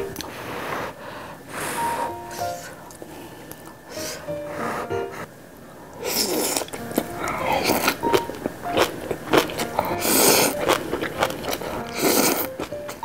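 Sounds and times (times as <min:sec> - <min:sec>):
noodles slurped: 0:06.0 - 0:12.6.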